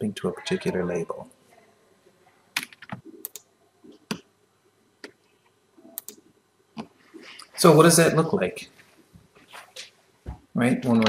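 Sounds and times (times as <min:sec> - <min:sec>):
computer keyboard and mouse clicks: 0:02.6 - 0:04.2, 0:06.0 - 0:06.2.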